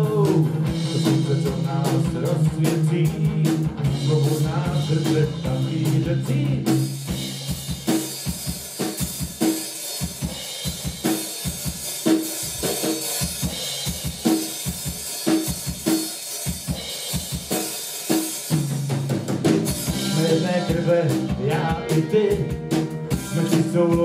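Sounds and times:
electric guitar: 0.0s - 9.1s, 18.6s - 24.0s
drum kit beat: 0.0s - 24.0s.

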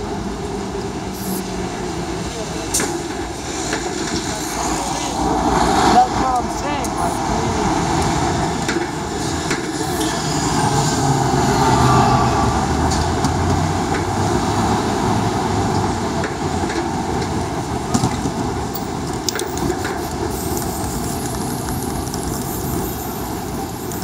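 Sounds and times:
street traffic: 0.0s - 24.0s
subway train rumbling: 0.0s - 24.0s.

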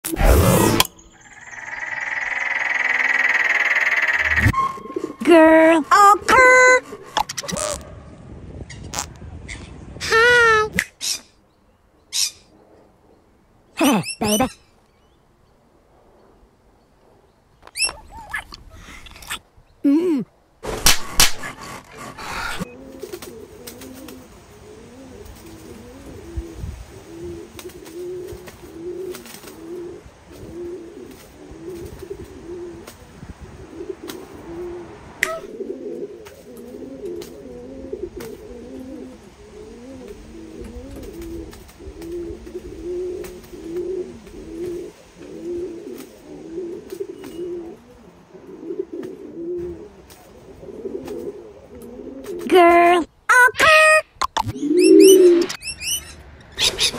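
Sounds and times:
doves cooing: 0.6s - 7.9s, 21.0s - 53.2s, 54.4s - 56.9s.

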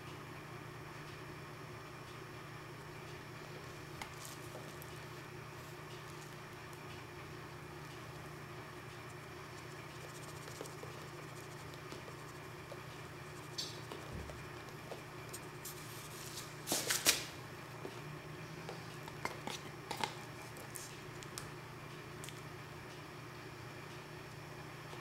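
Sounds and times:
steady low hum: 0.0s - 25.0s
scratchy noises: 9.0s - 14.5s.

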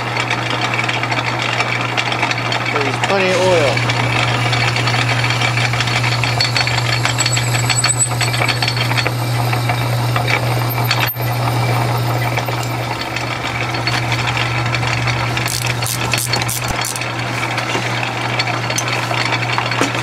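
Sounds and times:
metal lathe humming: 2.9s - 17.2s.

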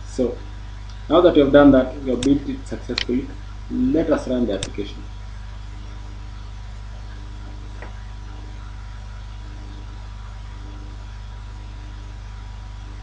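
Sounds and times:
even hiss: 0.0s - 5.1s
low electrical hum: 0.0s - 13.0s.

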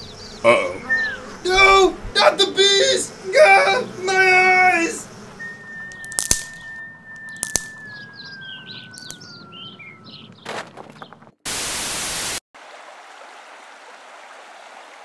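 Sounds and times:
birds chirping: 0.0s - 11.4s
falling whistle: 5.4s - 7.2s
rushing river water: 12.6s - 15.0s.

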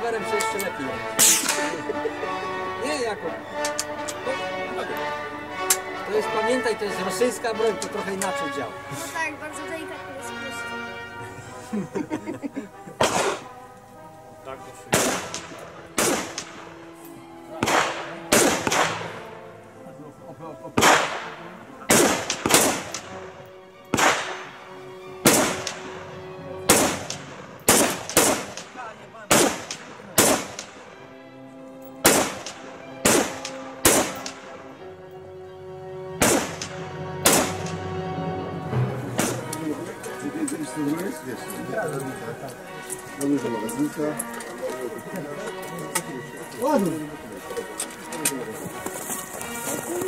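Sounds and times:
rifle shots with echo: 1.2s - 1.8s, 13.0s - 13.4s, 14.9s - 16.7s, 17.6s - 19.2s, 20.8s - 23.1s, 23.9s - 24.5s, 25.2s - 25.8s, 26.7s - 30.8s, 32.0s - 34.5s, 36.2s - 37.8s.

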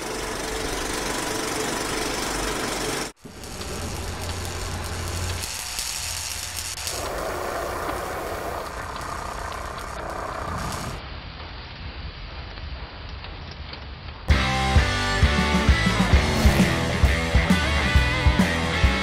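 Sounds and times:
machine running: 0.0s - 11.0s
sparks hissing from cutting metal: 3.2s - 11.0s.

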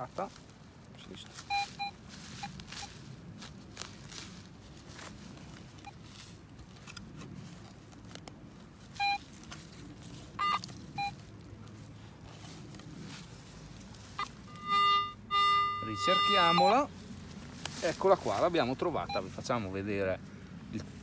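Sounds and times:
metal detector beeps: 1.4s - 2.9s, 8.9s - 9.3s, 10.4s - 11.2s, 14.2s - 16.9s, 19.0s - 19.4s.

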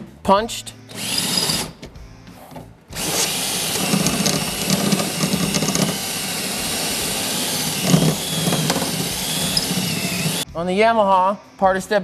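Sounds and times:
power drill drilling metal: 1.0s - 1.7s, 3.0s - 10.4s
faint drill whine: 3.0s - 10.4s.

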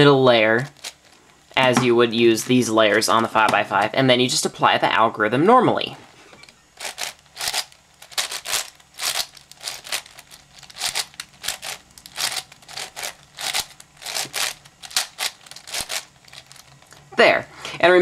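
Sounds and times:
puzzle cube plastic clicks: 6.8s - 16.9s.

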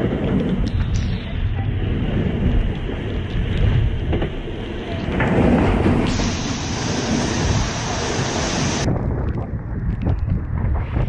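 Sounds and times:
wind and rushing water rumble: 0.0s - 11.0s
hiss of spray: 6.0s - 8.9s.

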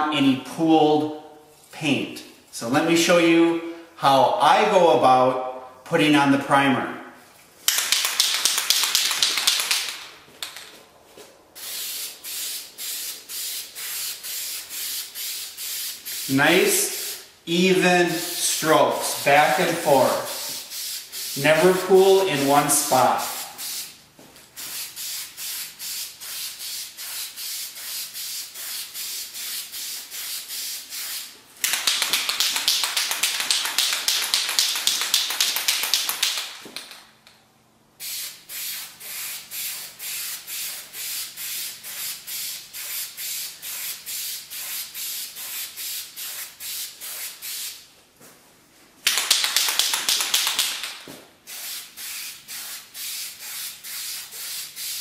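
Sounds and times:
spray can ball rattling: 7.6s - 10.8s, 24.6s - 37.3s, 49.0s - 55.0s
spray can hissing: 7.7s - 10.1s, 11.6s - 17.3s, 18.0s - 24.0s, 24.6s - 36.9s, 38.0s - 47.8s, 49.0s - 55.0s.

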